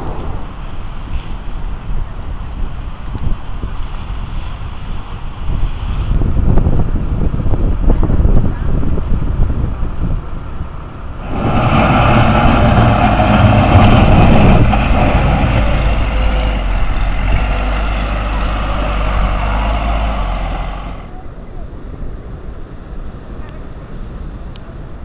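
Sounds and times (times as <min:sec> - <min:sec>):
wind buffeting microphone: 0:00.0 - 0:21.1
diesel engine running: 0:11.0 - 0:21.1
digger scraping dirt: 0:11.2 - 0:21.1.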